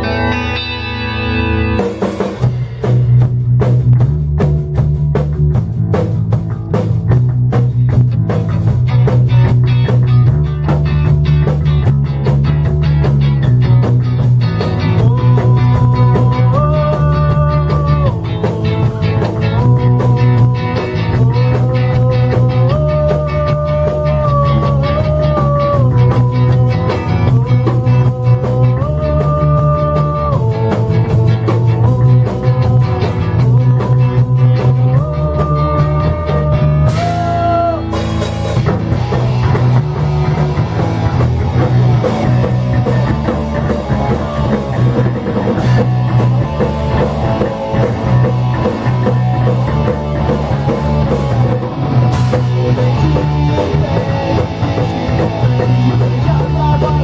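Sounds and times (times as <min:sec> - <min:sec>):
bass line: 0:00.0 - 0:57.0
drum kit beat: 0:00.0 - 0:57.0
electric guitars: 0:00.0 - 0:57.0
held melody line: 0:00.0 - 0:57.0.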